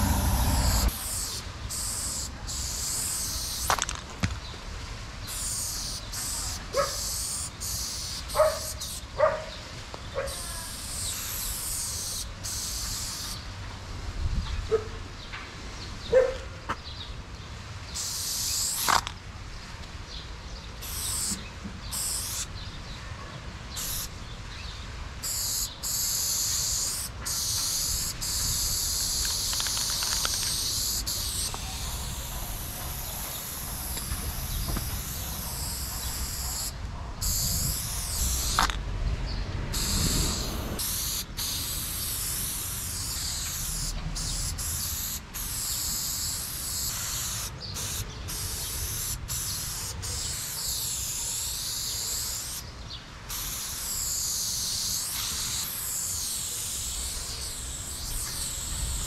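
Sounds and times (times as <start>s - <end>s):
spray paint can hissing: 0.0s - 4.0s, 5.2s - 9.2s, 10.3s - 13.4s, 17.9s - 19.2s, 20.8s - 22.5s, 23.7s - 24.1s, 25.2s - 38.8s, 39.7s - 52.7s, 53.3s - 59.0s.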